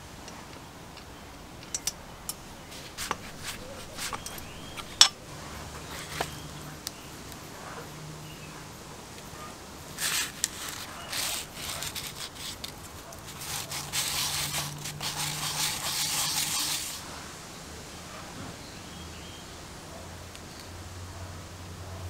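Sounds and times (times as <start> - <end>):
small metal parts clicking: 1.0 - 2.4, 10.0 - 17.0
short rustle: 2.7 - 6.4, 9.9 - 17.1.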